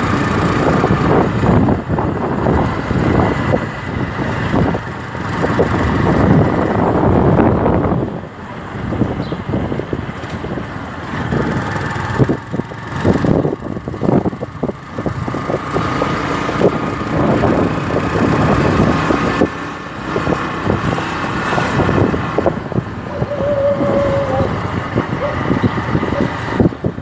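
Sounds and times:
motorcycle engine running: 0:00.0 - 0:27.0
wind buffeting microphone: 0:00.0 - 0:27.0.

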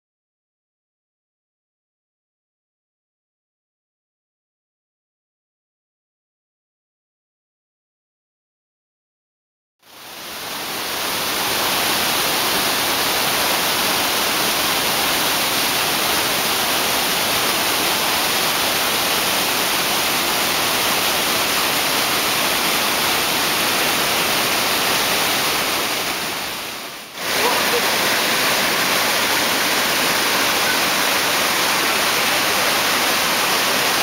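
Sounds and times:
whitewater rushing: 0:09.9 - 0:34.0.

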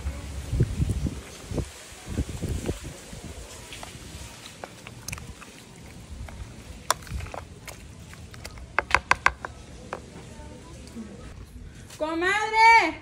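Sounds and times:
plastic spoon stirring in bowl: 0:03.7 - 0:10.2.

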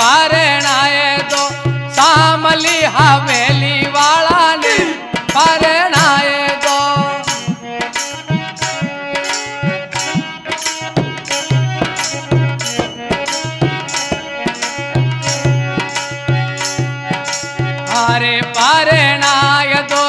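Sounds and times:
hand drum beat: 0:10.0 - 0:19.5.

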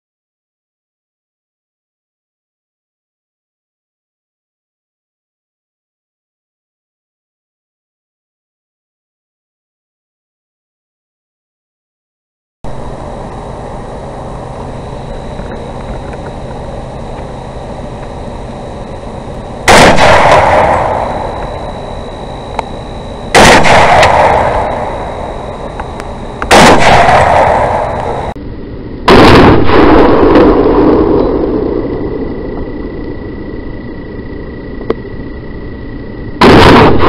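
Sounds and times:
steady hiss with high whine: 0:12.7 - 0:37.0
rifle shots: 0:19.6 - 0:22.3, 0:23.2 - 0:28.4, 0:29.1 - 0:31.0, 0:36.4 - 0:37.0.

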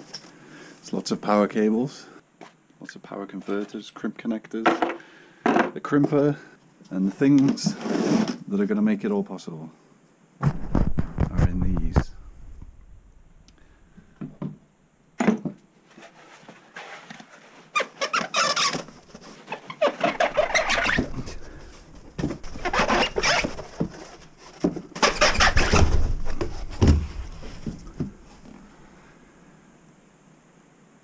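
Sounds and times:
foam blocks squeaking and scraping: 0:02.4 - 0:04.0, 0:07.1 - 0:08.4, 0:15.8 - 0:28.6.

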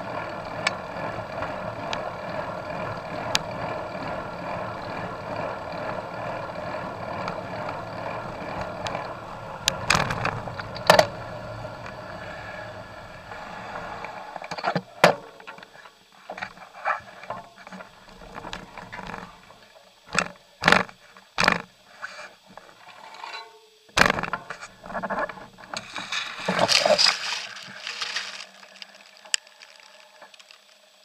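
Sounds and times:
bicycle knocking and rattling: 0:00.0 - 0:21.8, 0:23.9 - 0:30.9
rustling through tall grass: 0:25.6 - 0:30.7.

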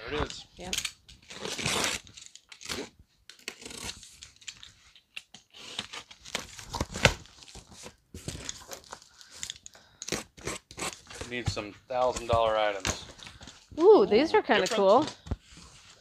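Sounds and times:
box cutter slicing tape: 0:01.2 - 0:04.5, 0:10.0 - 0:11.3.

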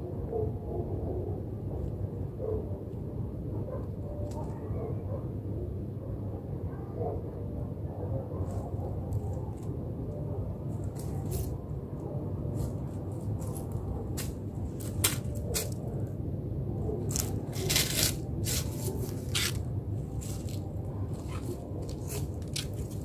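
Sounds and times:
dry leaves crackling: 0:12.6 - 0:15.8, 0:17.1 - 0:23.0.

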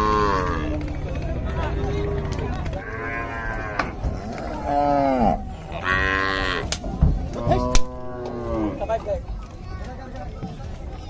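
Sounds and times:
cattle mooing: 0:00.0 - 0:00.8, 0:02.8 - 0:06.7, 0:07.4 - 0:08.9.

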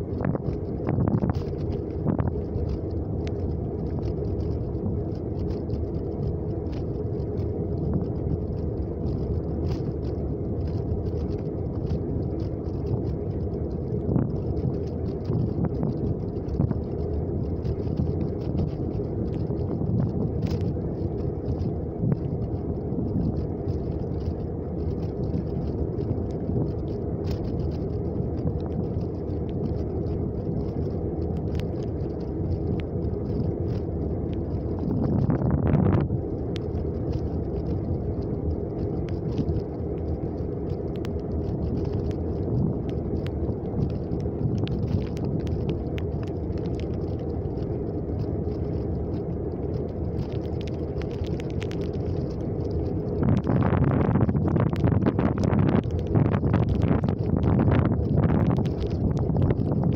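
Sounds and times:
car engine and tyres rumbling: 0:00.0 - 0:59.9
faint ticks: 0:00.0 - 0:59.9.

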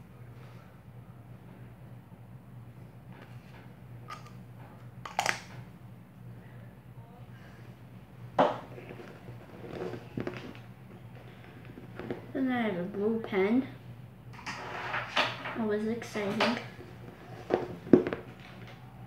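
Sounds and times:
low steady hum: 0:00.0 - 0:19.0
bag rustling and knocks: 0:08.4 - 0:10.6.

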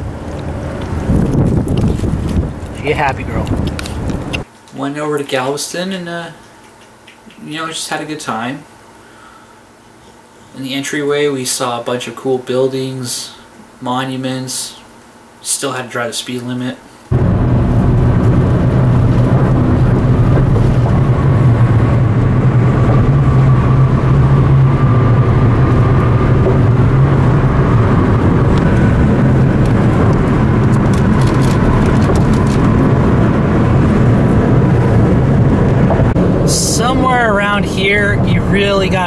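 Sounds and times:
car road noise drone: 0:00.0 - 0:04.4, 0:17.1 - 0:39.0
wind rushing noise: 0:00.0 - 0:04.4, 0:17.1 - 0:39.0.

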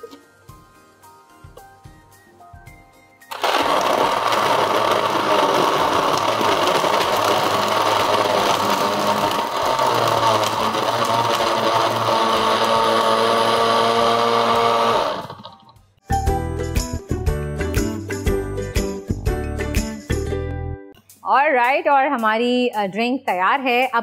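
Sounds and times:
blender crushing ice: 0:03.3 - 0:15.6.

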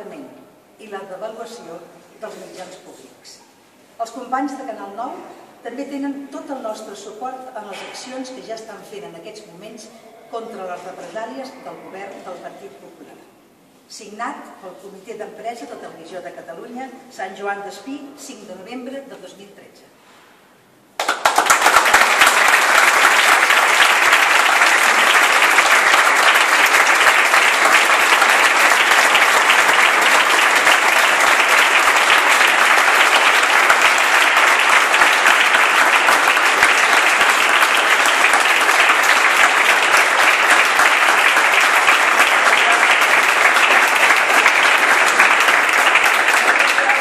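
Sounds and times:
crowd applauding: 0:21.0 - 0:47.0.

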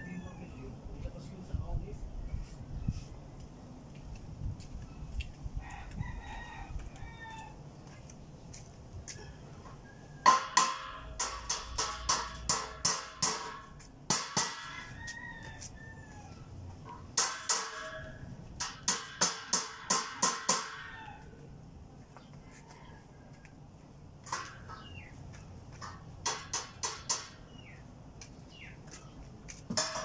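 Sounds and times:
tool tapping steel gate: 0:10.2 - 0:14.7, 0:17.2 - 0:20.8, 0:25.7 - 0:27.4.

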